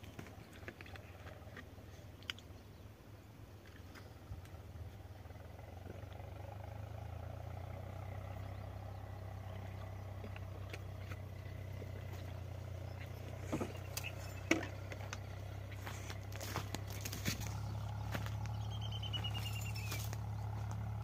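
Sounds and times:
steady low hum: 0.0s - 21.0s
branches cracking and brush rustling: 9.3s - 21.0s.

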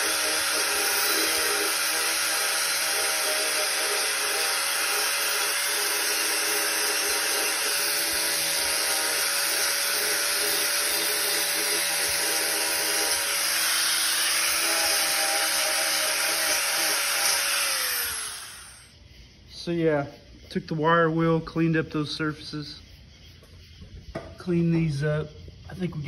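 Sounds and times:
wire brush scrubbing metal: 0.0s - 18.8s
angle grinder motor whine: 0.0s - 18.9s.

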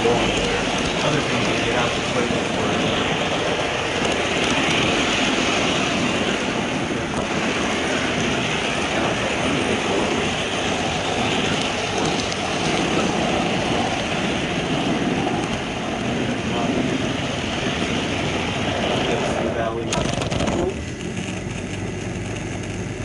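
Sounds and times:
model train wheels rolling: 0.0s - 14.0s, 19.1s - 23.0s.

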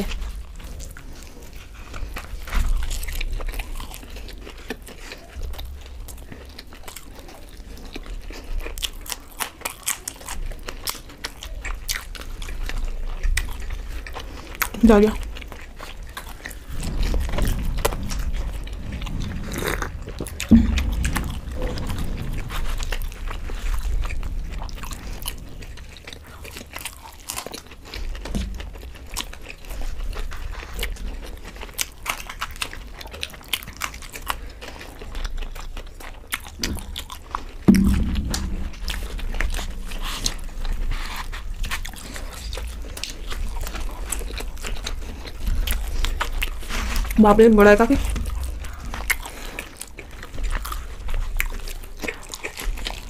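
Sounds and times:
people chewing: 0.0s - 53.0s
sharp thumps: 16.8s - 24.7s, 36.7s - 40.5s.

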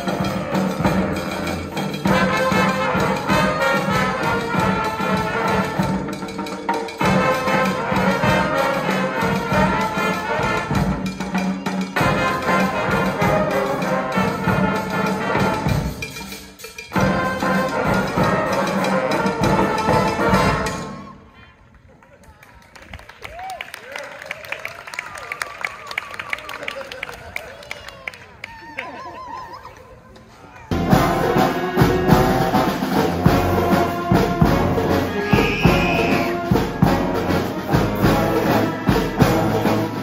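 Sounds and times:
brass band playing: 0.0s - 21.3s, 30.7s - 40.0s.

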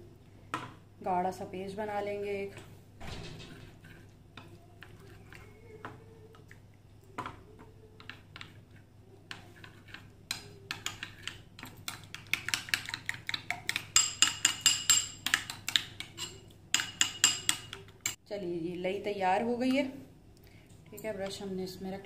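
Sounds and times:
metal spoon clinking in bowl: 10.3s - 18.2s.

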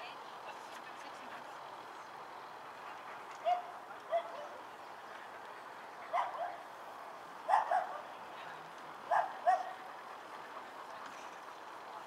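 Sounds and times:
faint crowd murmur: 0.0s - 12.0s
dog yipping: 3.4s - 4.6s, 6.1s - 6.6s, 7.5s - 8.0s, 9.1s - 9.7s.

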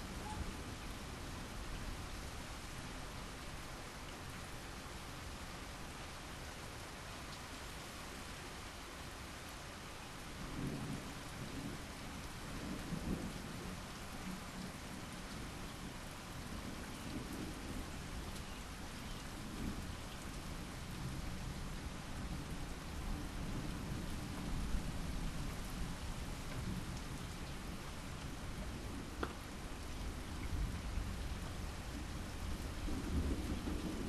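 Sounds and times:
steady rain hissing: 0.0s - 34.0s
low thunder rumbling: 30.1s - 34.0s.

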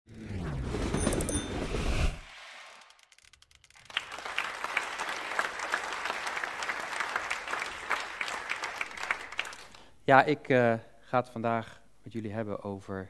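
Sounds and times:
audience applauding: 3.6s - 9.9s.

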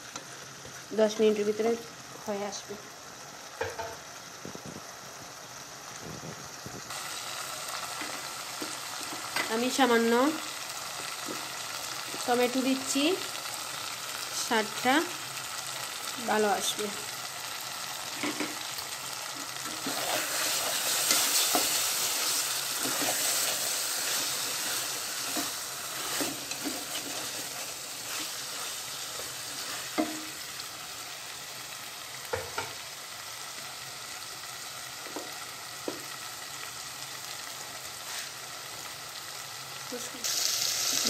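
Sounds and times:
chicken sizzling in oil: 0.0s - 41.0s.

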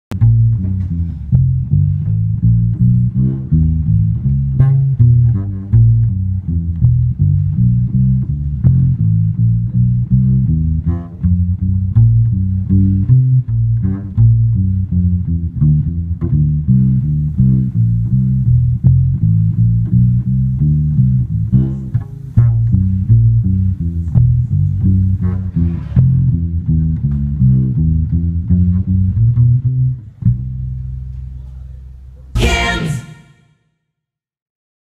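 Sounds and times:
plucked bass guitar notes: 0.1s - 33.4s.

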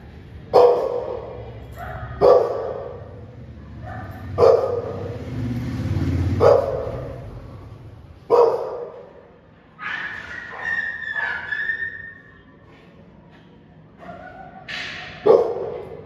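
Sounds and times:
dog barking: 0.5s - 5.2s, 6.3s - 7.3s, 8.3s - 9.2s, 9.8s - 12.1s, 14.0s - 16.0s.

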